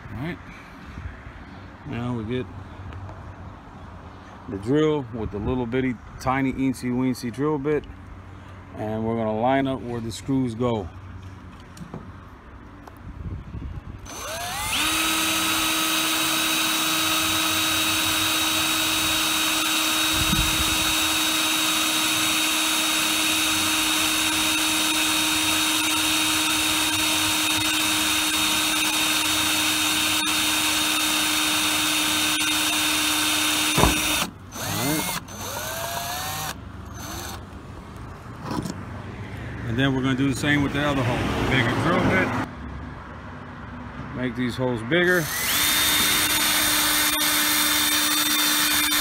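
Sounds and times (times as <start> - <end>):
electric drill whine: 14.0 - 37.4, 45.2 - 49.0.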